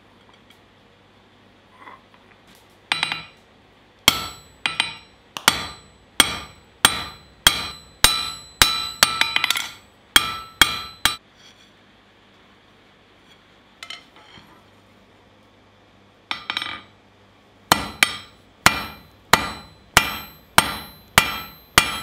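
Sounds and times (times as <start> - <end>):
hammer ringing on anvil: 2.9 - 3.4, 4.1 - 11.2, 17.7 - 22.0.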